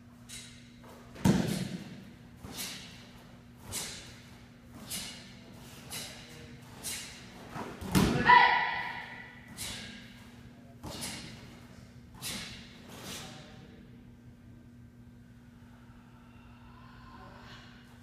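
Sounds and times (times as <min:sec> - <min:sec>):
loud shouted kiai: 0:08.0 - 0:09.4.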